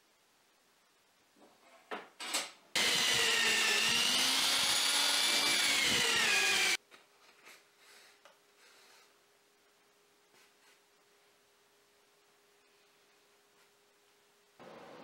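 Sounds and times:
electric drill whining: 0:02.8 - 0:06.8.

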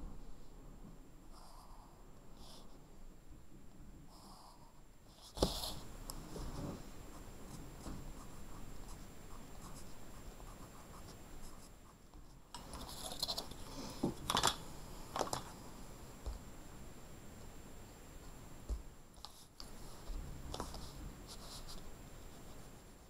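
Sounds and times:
pencil scratching on paper: 0:04.5 - 0:13.6.

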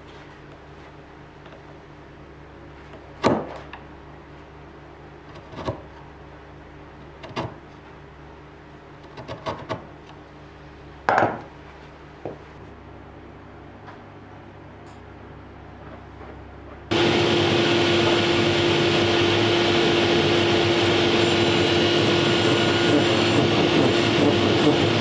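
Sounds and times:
chisel scraping wood: 0:05.2 - 0:06.0, 0:07.1 - 0:07.8, 0:09.0 - 0:09.9.

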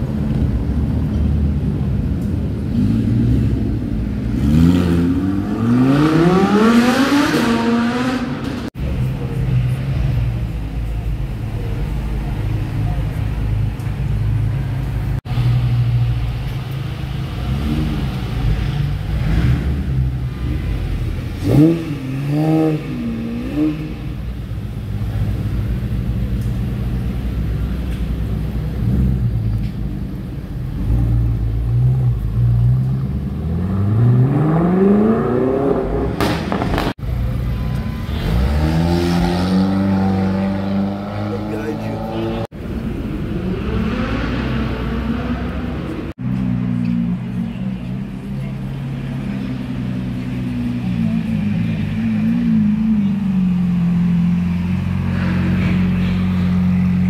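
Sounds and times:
car accelerating away: 0:02.3 - 0:08.8, 0:15.4 - 0:27.8, 0:30.5 - 0:37.3, 0:38.1 - 0:57.0
sports car engine idling: 0:23.9 - 0:33.4.

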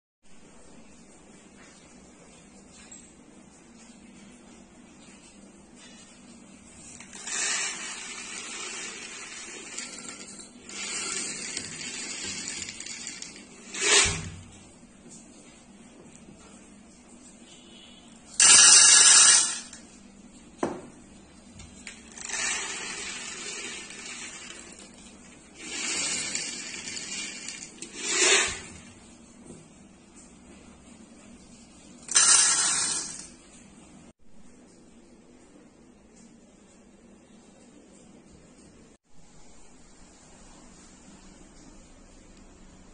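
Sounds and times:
dried peas pouring into cup: 0:07.0 - 0:14.2, 0:18.4 - 0:19.7, 0:21.9 - 0:28.7, 0:32.1 - 0:33.3.

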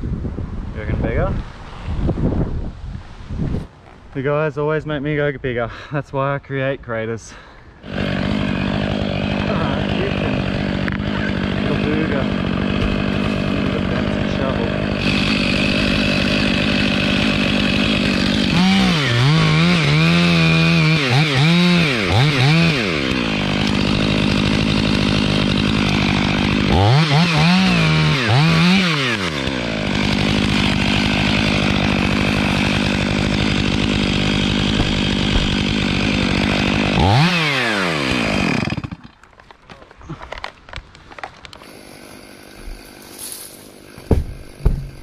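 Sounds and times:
chainsaw cutting at full throttle: 0:07.8 - 0:39.2, 0:41.6 - 0:45.0.

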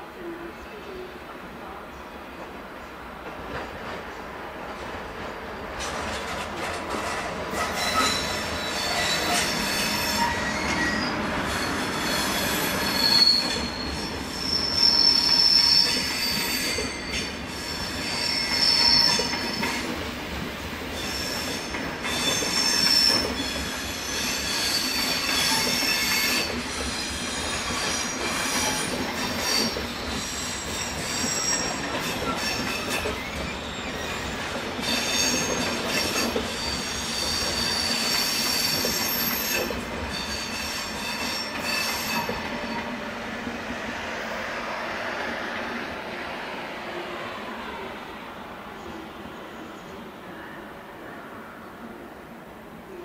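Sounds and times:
train rolling rumble: 0:00.9 - 0:50.0
railway wheels squealing: 0:05.8 - 0:45.6.

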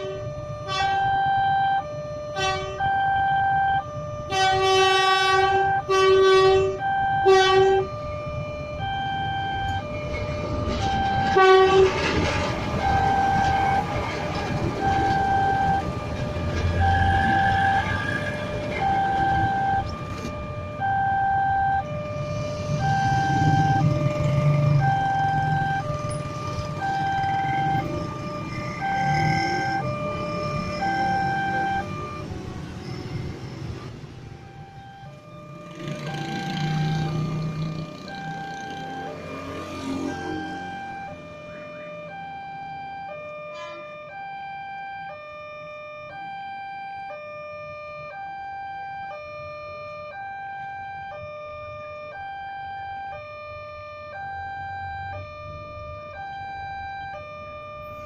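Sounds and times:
train horn: 0:00.0 - 0:01.0, 0:02.3 - 0:02.8, 0:04.3 - 0:07.9, 0:10.8 - 0:12.3, 0:43.5 - 0:44.0
level-crossing alarm tones: 0:00.0 - 0:58.0
passing train rumble: 0:04.3 - 0:20.6, 0:21.8 - 0:42.1.

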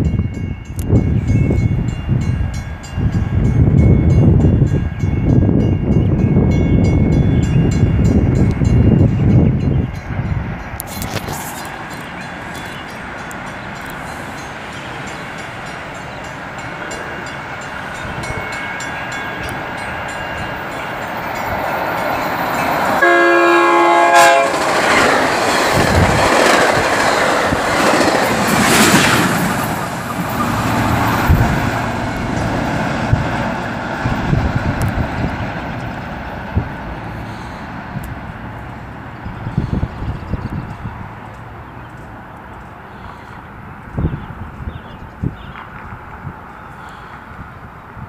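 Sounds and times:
diesel train rumble: 0:00.0 - 0:48.0
train horn blast: 0:23.0 - 0:25.1
wheels clacking over rail joints: 0:24.2 - 0:37.1.

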